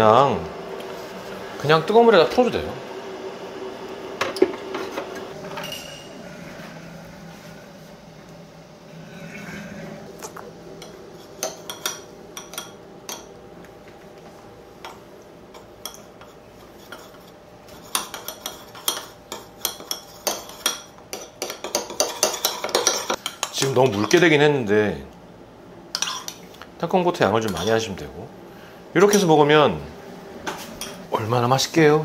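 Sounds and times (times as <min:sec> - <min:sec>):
spoon clinking and scraping bowl: 0:05.6 - 0:06.1, 0:10.8 - 0:13.3, 0:14.8 - 0:24.2, 0:26.0 - 0:26.5, 0:27.5 - 0:27.9.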